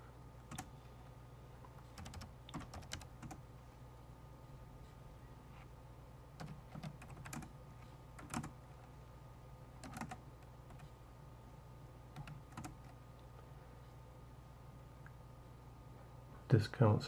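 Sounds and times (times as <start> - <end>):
faint low hum: 0.0 - 17.0
keyboard keystrokes: 8.2 - 8.5, 9.8 - 10.8.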